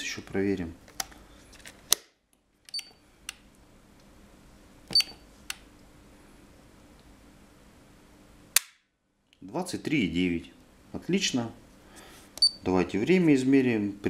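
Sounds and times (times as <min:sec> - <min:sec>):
button clicks: 0:04.9 - 0:05.2.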